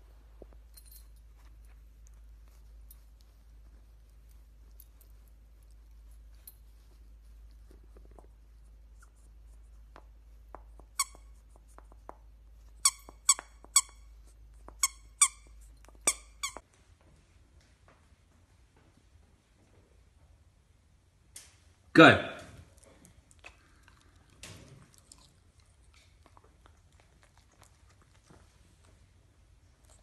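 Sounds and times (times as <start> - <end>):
dog gnawing toy: 0.3 - 16.6, 22.7 - 30.0
squeaky toy squeaks: 10.9 - 11.3, 12.8 - 14.1, 14.8 - 16.6.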